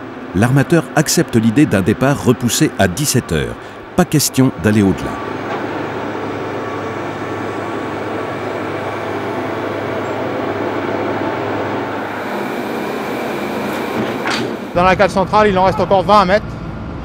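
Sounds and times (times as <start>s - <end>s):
heavy machinery drone: 0.0s - 17.0s.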